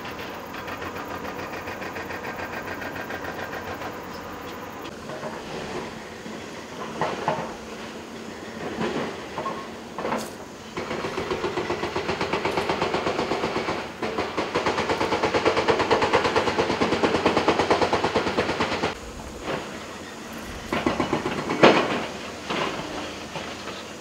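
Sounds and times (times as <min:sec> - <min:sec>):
hydraulic breaker hammering stone: 0:10.8 - 0:19.0.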